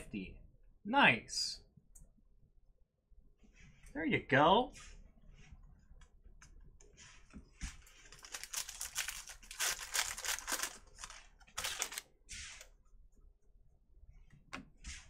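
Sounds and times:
foil pack tearing and crinkling: 8.0 - 12.1.

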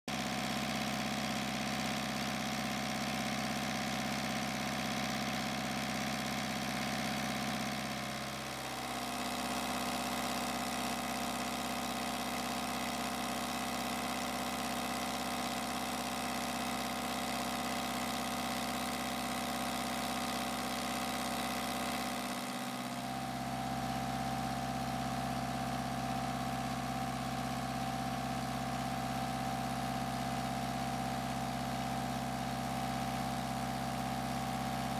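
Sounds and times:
diesel engine idling: 17.5 - 34.9.

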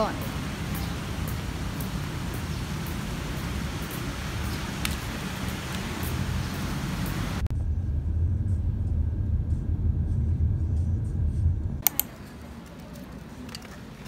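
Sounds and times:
car rumble from inside cabin: 7.4 - 11.8
sharp clicks: 11.8 - 13.8.

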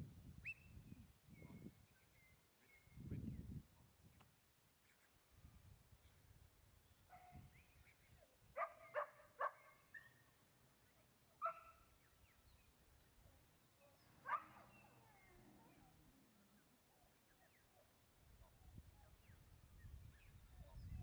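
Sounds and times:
dog barking: 8.6 - 10.2, 11.4 - 11.9, 13.8 - 15.8.

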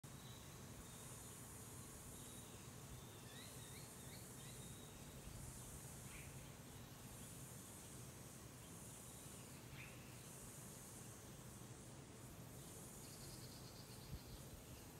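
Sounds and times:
insect chorus: 0.0 - 14.9
bird chirps: 2.2 - 5.3.

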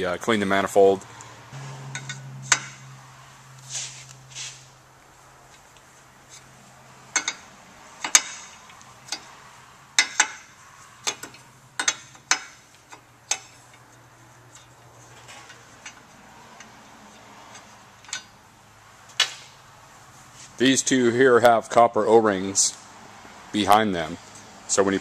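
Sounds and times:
faint low hum: 1.0 - 4.3
wrench clicking on metal: 8.0 - 9.3, 10.0 - 13.9.

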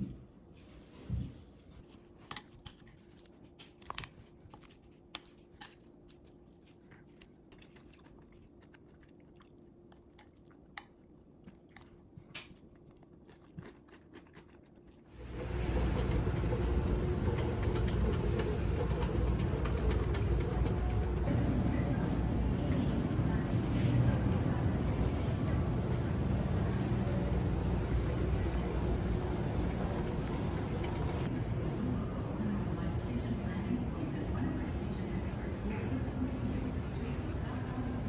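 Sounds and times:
spoon stirring food squishing: 0.5 - 21.3
loud steady background noise: 15.2 - 38.0.

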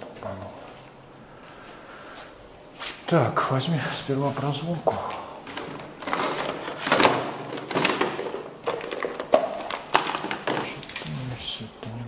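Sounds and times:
plastic bags rustling: 4.0 - 12.0
items clunking against plastic: 4.9 - 11.3.

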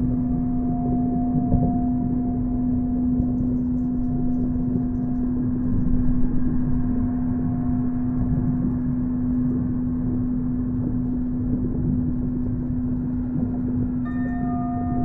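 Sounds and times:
steady low hum: 0.0 - 15.0
dense rumbling noise: 3.6 - 14.0.

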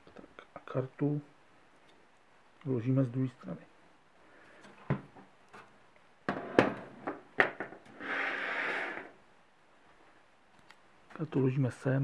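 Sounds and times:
case scraping on wooden table: 7.9 - 9.2.

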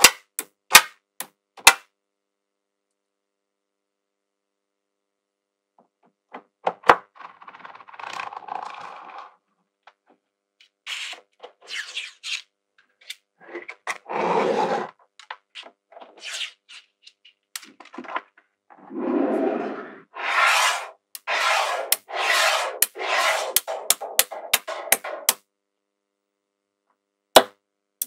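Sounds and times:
magnetic balls scraping: 13.4 - 15.0, 18.0 - 25.4.

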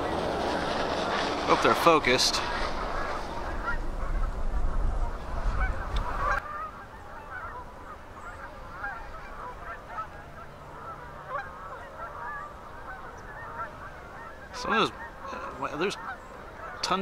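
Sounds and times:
swans and geese calling: 0.0 - 17.0
wind buffeting microphone: 0.0 - 17.0.

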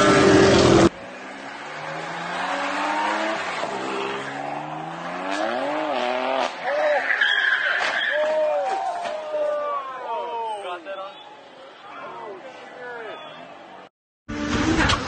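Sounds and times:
car engine revving: 0.0 - 7.2
tyres squealing: 2.9 - 9.9.

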